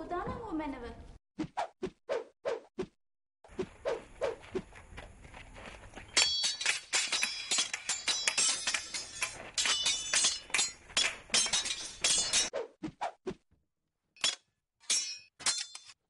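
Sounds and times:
swords clashing: 6.2s - 12.5s, 14.2s - 16.0s.

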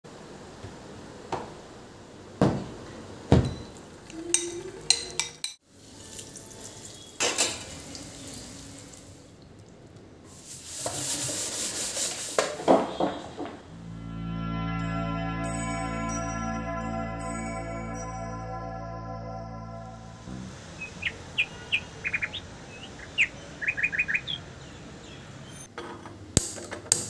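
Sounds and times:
knocks and clinks of utensils: 3.4s - 5.6s.

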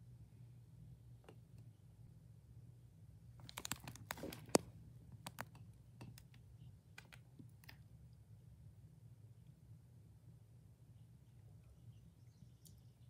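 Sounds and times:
low steady hum: 0.0s - 13.0s
light clicks and taps: 3.5s - 6.4s.

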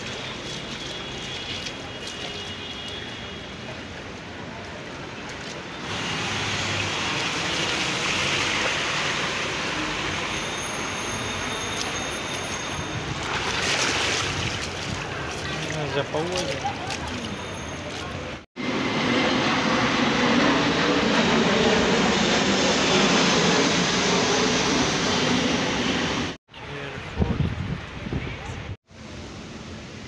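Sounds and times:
cars driving through water: 0.0s - 18.4s.

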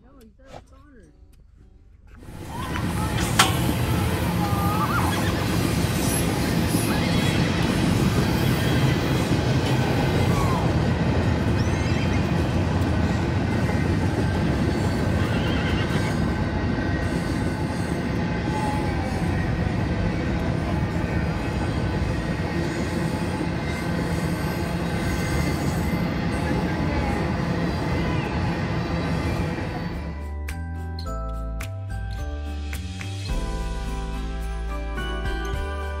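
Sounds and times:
horses whinnying: 2.2s - 12.6s, 14.7s - 16.5s
freight train rumbling past: 2.2s - 30.6s, 33.3s - 36.0s.

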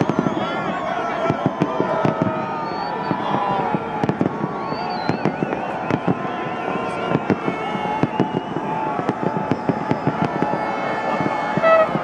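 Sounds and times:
fireworks bangs and crackles: 0.0s - 12.0s
high whistling tone: 2.4s - 12.0s.

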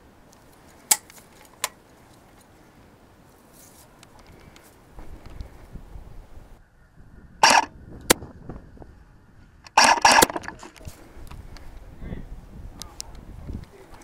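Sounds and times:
airsoft gun clicks: 0.8s - 1.8s
airsoft gun shots: 7.4s - 8.2s, 9.7s - 10.5s.

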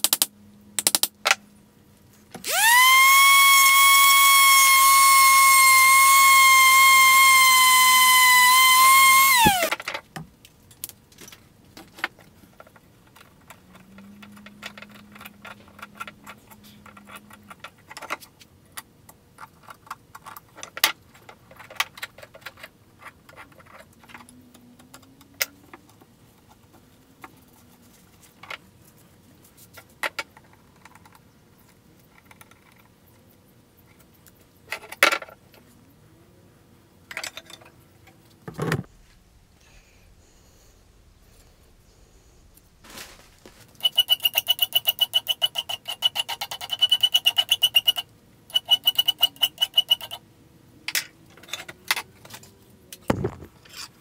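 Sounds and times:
electric sander whining: 2.4s - 9.7s.

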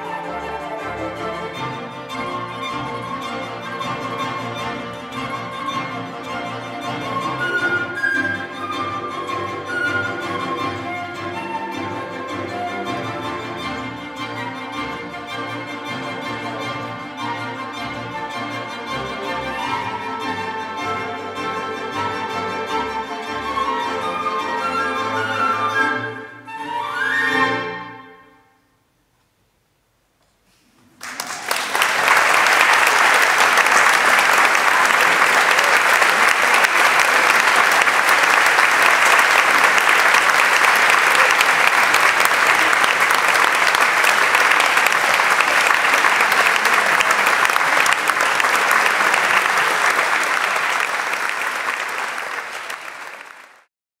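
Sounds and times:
audience applauding: 30.8s - 53.7s.

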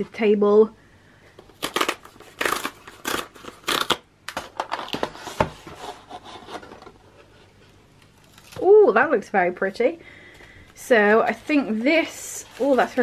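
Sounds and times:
cardboard tear strip ripping: 1.5s - 4.1s, 8.2s - 8.6s
cardboard scraping and rustling: 4.5s - 8.4s, 11.2s - 13.0s.

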